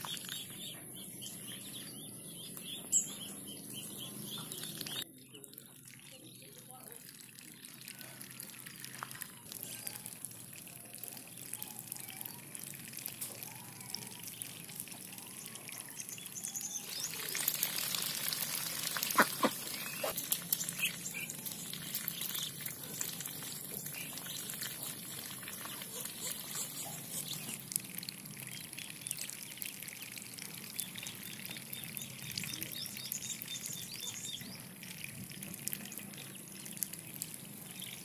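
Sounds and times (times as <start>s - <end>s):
ducks dabbling in water: 3.7s - 38.0s
sharp water splashes: 16.6s - 38.0s.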